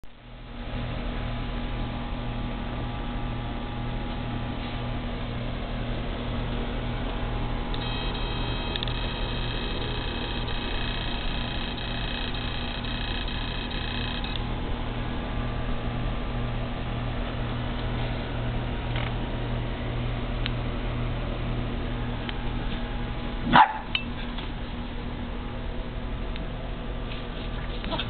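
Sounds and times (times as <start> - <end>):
electrical hum and hiss: 0.1 - 28.0
high steady whine: 0.1 - 28.0.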